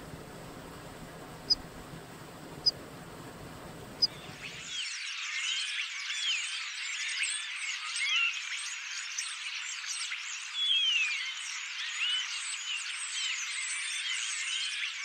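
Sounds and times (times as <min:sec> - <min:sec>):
flock of small birds chirping: 0:04.0 - 0:15.0.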